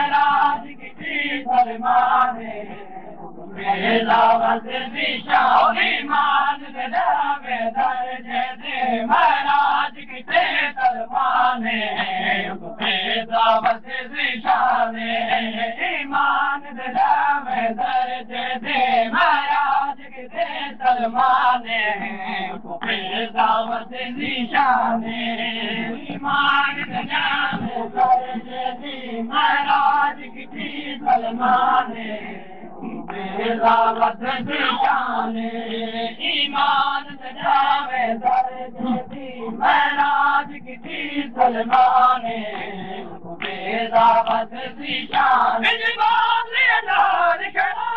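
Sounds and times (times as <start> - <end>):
men chanting a lament: 0.0 - 47.9.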